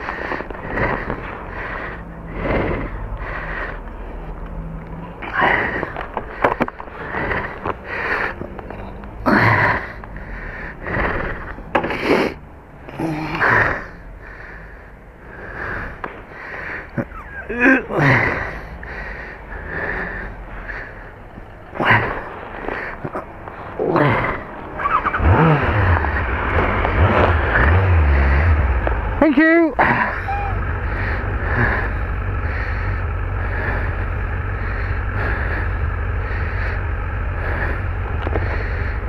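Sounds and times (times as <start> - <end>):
person breathing heavily: 0.0 - 26.5, 29.8 - 39.0.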